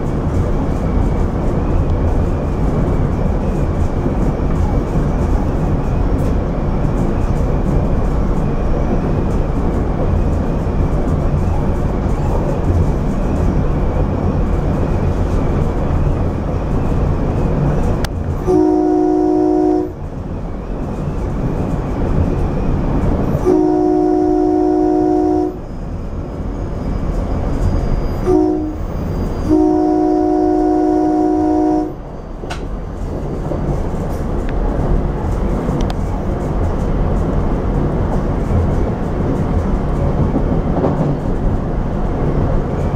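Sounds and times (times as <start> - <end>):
train rumbling along track: 0.0 - 42.9
train air horn: 18.4 - 20.0, 23.4 - 25.6, 28.2 - 32.0.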